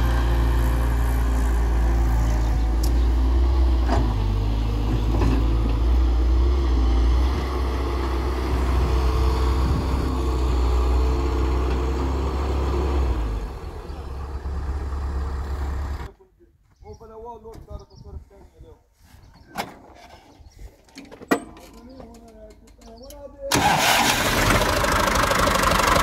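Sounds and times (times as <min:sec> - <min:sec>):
heavy diesel engines droning: 0:00.0 - 0:16.1, 0:23.5 - 0:26.0.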